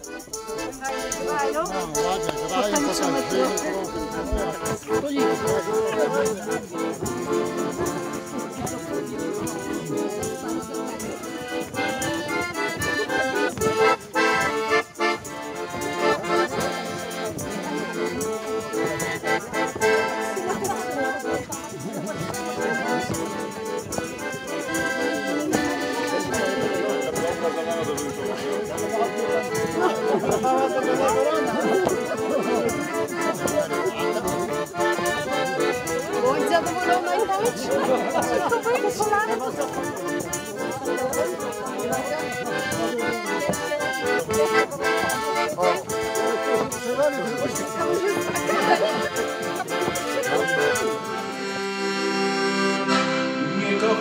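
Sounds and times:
accordion dance tune: 0.0 - 54.0.

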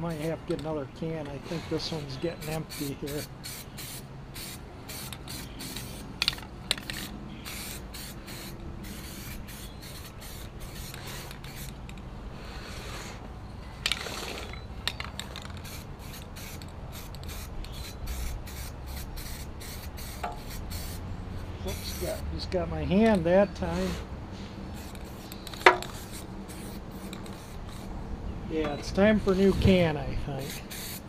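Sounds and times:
aerosol can spraying: 1.4 - 11.8, 15.6 - 21.0, 21.7 - 22.2, 24.8 - 27.9, 30.4 - 31.0.

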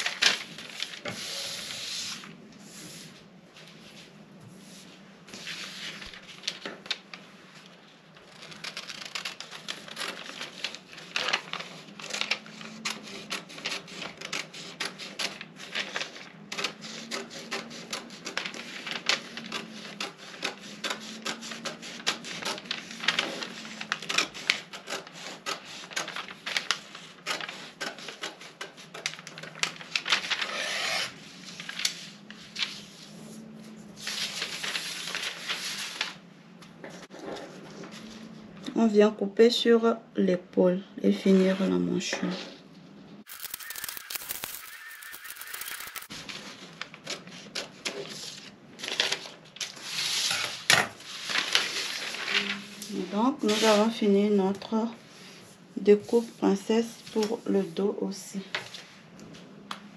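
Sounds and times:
scissors snipping paper: 8.3 - 31.1, 43.3 - 46.1.

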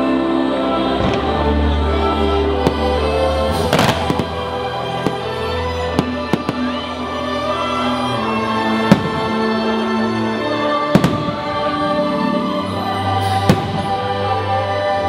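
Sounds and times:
music over loudspeakers: 0.0 - 15.0
fireworks bangs: 2.6 - 7.0, 8.7 - 9.7, 10.9 - 11.8, 13.2 - 14.1.

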